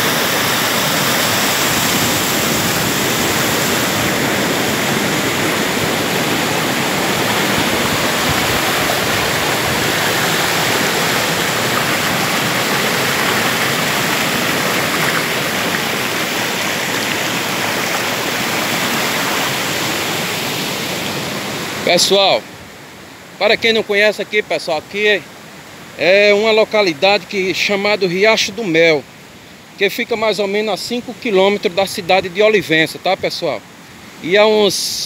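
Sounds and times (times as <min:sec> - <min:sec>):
waterfall rushing: 0:00.0 - 0:35.0.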